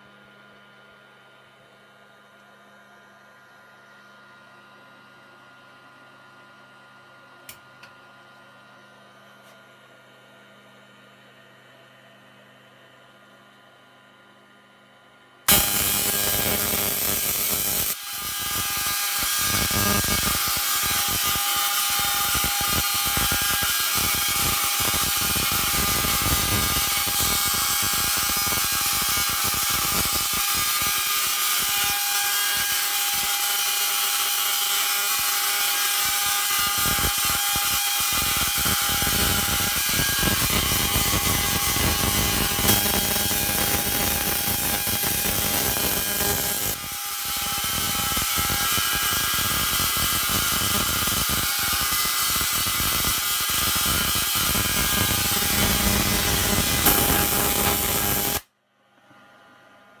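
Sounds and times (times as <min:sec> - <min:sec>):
tesla coil electric buzz: 0:15.5 - 0:58.5.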